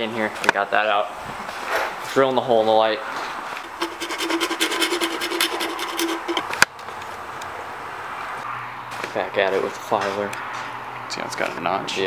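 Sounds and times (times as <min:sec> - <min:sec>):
hole saw scraping plastic: 0:03.6 - 0:06.6.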